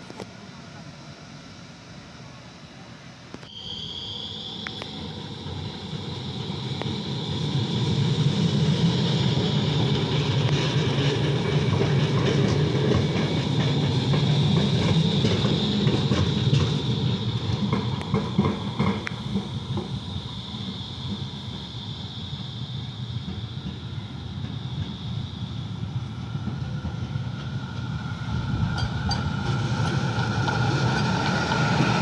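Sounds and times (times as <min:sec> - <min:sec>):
tram high whine: 0:00.0 - 0:32.0
wheels rumbling on rail: 0:00.0 - 0:32.0.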